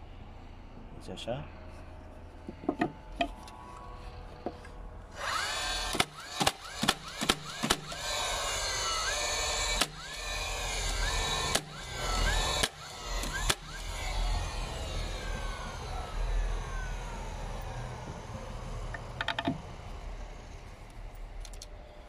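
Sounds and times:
nailer motor whirring: 0:02.4 - 0:22.0
nail shot sharp crack: 0:05.9 - 0:08.0.

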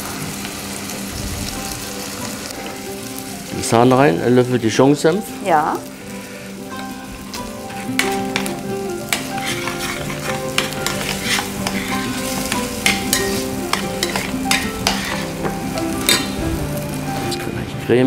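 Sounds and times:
soft sizzle: 0:00.0 - 0:18.0
spoon scraping a saucepan: 0:09.1 - 0:16.4.

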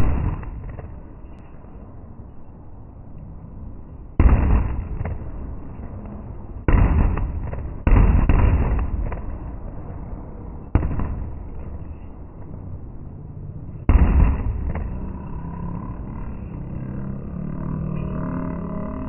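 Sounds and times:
firework shells booming: 0:00.0 - 0:01.4, 0:04.2 - 0:10.0, 0:10.6 - 0:12.5, 0:13.9 - 0:15.3.

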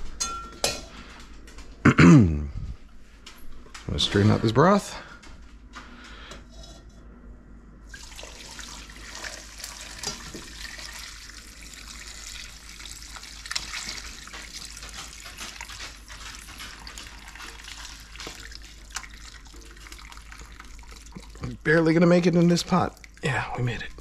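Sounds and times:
liquid splashing into a pot: 0:07.9 - 0:23.4.

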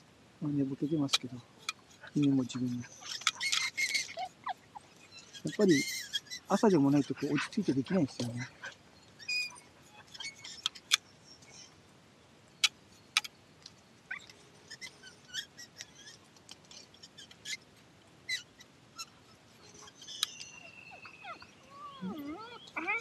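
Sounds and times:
faint high chirps: 0:18.3 - 0:23.0.

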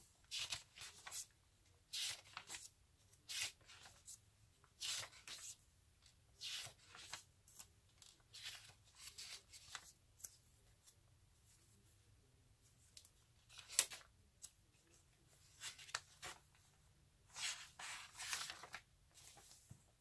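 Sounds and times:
paper pages turning: 0:00.3 - 0:01.3, 0:01.9 - 0:05.6, 0:06.4 - 0:11.0, 0:13.4 - 0:14.5, 0:15.5 - 0:16.6, 0:17.3 - 0:19.8.

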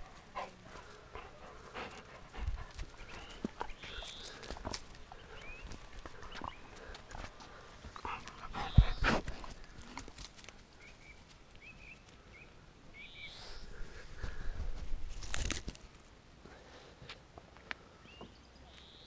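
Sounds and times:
scuffing and rustling of grass: 0:13.5 - 0:16.1.

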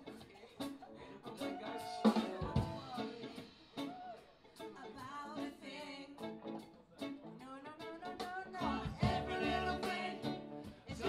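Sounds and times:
drum kit beat: 0:00.0 - 0:05.4, 0:08.0 - 0:11.0
electric guitars: 0:00.0 - 0:11.0
group singing: 0:01.0 - 0:03.4, 0:08.4 - 0:11.0.

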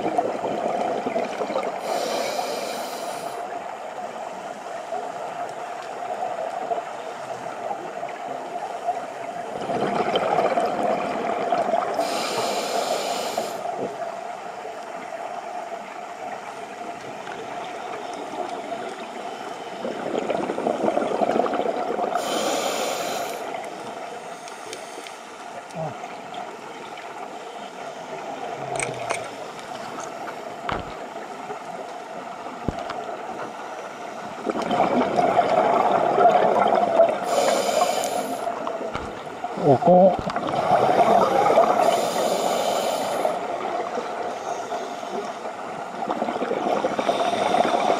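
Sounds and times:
scuba regulator breathing bubbles: 0:00.6 - 0:03.5, 0:09.6 - 0:13.8, 0:19.7 - 0:23.6, 0:34.4 - 0:38.6, 0:40.4 - 0:47.9
small clicks: 0:28.7 - 0:31.0.

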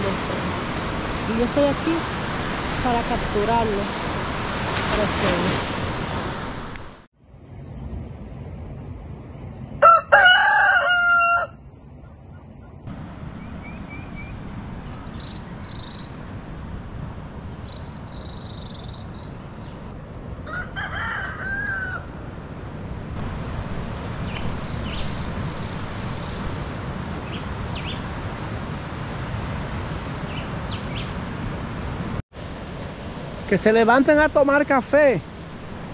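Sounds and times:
rooster crowing: 0:09.8 - 0:11.6, 0:20.4 - 0:22.2
small birds chirping: 0:13.4 - 0:16.2, 0:17.5 - 0:19.9, 0:24.3 - 0:28.1.

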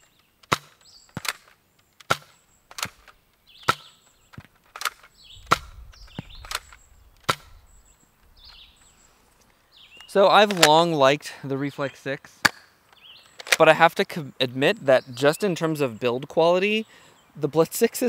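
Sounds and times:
foam dart gun plastic snaps: 0:00.4 - 0:05.1, 0:12.4 - 0:12.7.

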